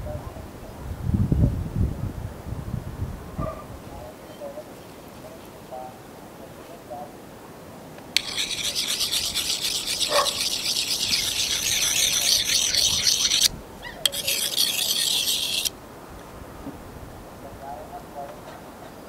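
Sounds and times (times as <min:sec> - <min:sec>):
knife scraping on sharpening steel: 0:08.2 - 0:15.7.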